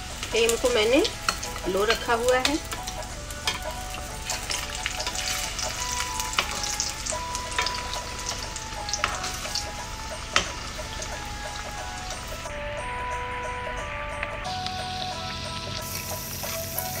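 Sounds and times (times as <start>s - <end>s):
food sizzling in hot oil: 0.0s - 12.5s, 14.4s - 17.0s
metal spoon tapping a pan: 0.5s - 9.6s, 10.3s - 11.0s.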